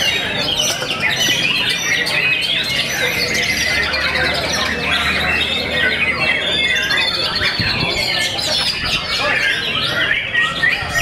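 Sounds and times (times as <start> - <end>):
other birds singing: 0.0 - 11.0.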